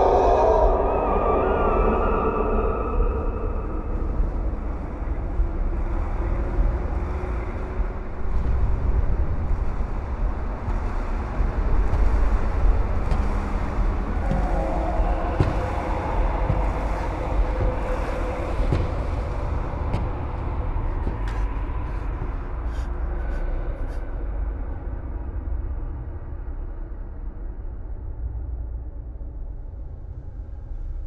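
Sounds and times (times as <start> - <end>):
deep steady rumble: 0.0 - 31.0.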